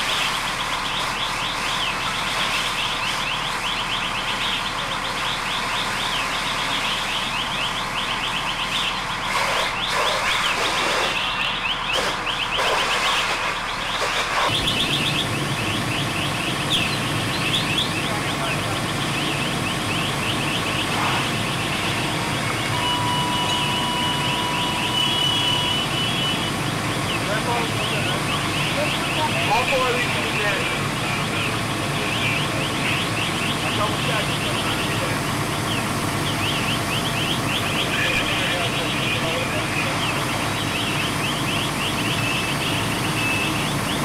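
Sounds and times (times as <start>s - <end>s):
fire engine idling rumble: 0.0s - 44.0s
electronic alarm chirping: 0.5s - 18.2s, 18.9s - 30.0s, 35.7s - 44.0s
steady electronic beep: 19.1s - 29.9s, 35.7s - 43.8s.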